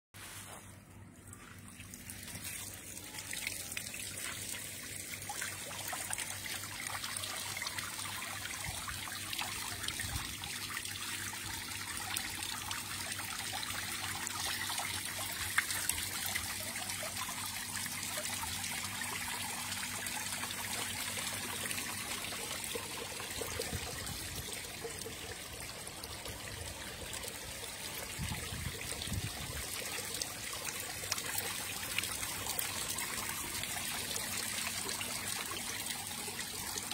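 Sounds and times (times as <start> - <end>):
water trickling: 0.3 - 36.9.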